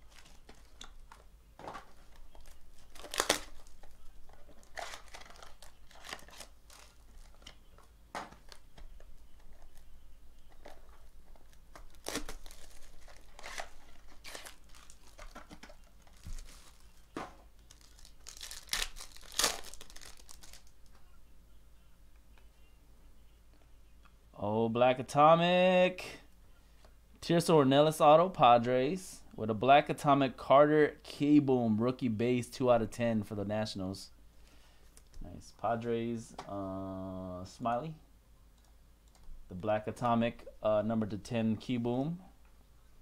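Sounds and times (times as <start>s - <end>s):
plastic shrink wrap crinkling: 0.0s - 20.9s
plastic wrap tearing: 2.3s - 7.6s, 11.4s - 20.8s.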